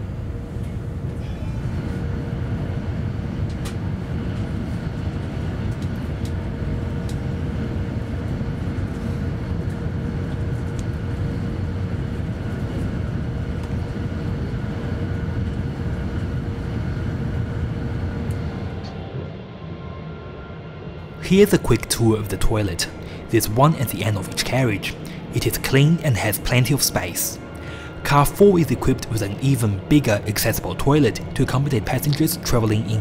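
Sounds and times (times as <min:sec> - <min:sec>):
faint steady whine: 0:21.0 - 0:33.0.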